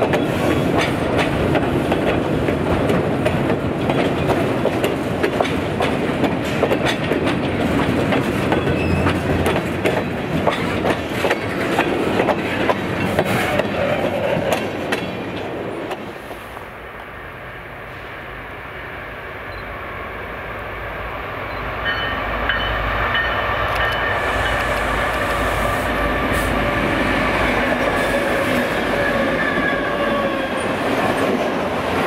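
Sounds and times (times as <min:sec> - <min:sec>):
train wheels clicking over rail joints: 0:00.0 - 0:16.4
freight train rumble: 0:00.0 - 0:32.0.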